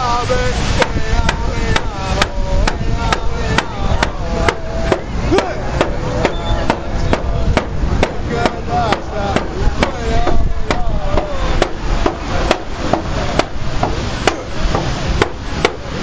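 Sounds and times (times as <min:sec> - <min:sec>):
person singing: 0:00.0 - 0:06.7, 0:08.2 - 0:11.8
frame drum beating: 0:00.8 - 0:15.9.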